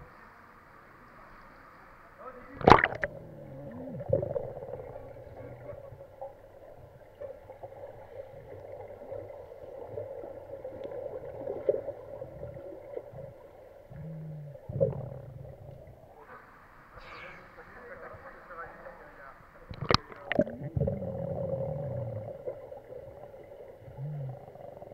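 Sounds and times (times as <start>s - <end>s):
underwater hum: 0.0s - 24.9s
bubbling: 2.6s - 16.2s, 19.7s - 24.9s
low underwater rumble: 2.6s - 16.2s, 19.7s - 24.9s.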